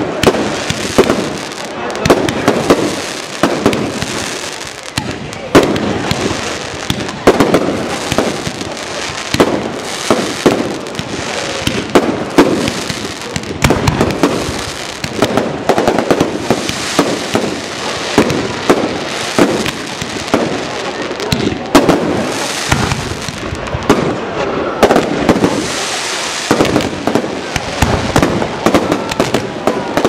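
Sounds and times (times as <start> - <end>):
fireworks bursting with bangs: 0.0 - 30.0.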